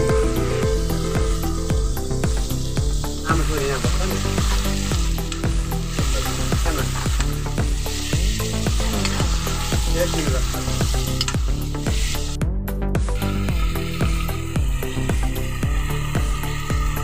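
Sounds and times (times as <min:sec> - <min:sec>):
background music with bass line: 0:00.0 - 0:17.0
meat sizzling in a pan: 0:00.0 - 0:17.0
metal ladle scraping a pan: 0:07.9 - 0:12.4.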